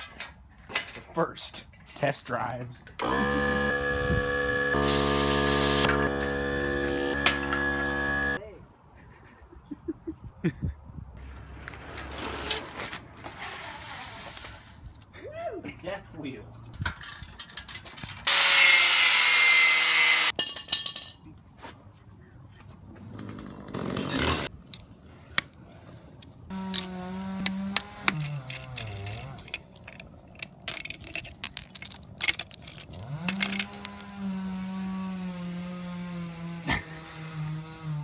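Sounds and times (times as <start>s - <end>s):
motor humming: 3.0s - 8.4s.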